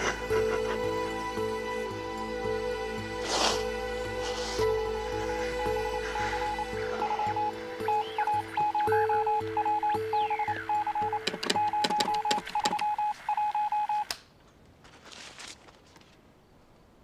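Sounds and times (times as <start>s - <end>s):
morse code beeps: 6.4s - 14.1s
static crackles: 7.0s - 14.1s
faint rustle: 14.6s - 16.4s.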